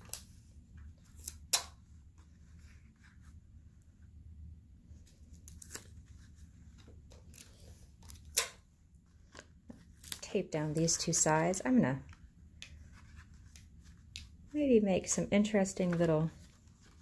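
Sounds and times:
paper rustling: 15.6 - 17.0.

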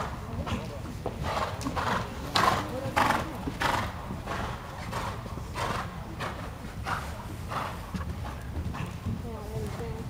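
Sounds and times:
horse cantering on soft ground: 0.0 - 10.0.

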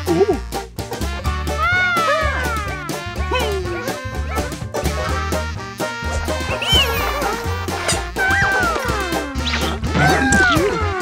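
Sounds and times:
upbeat cartoon music: 0.0 - 11.0
high sliding tones: 6.2 - 8.0.

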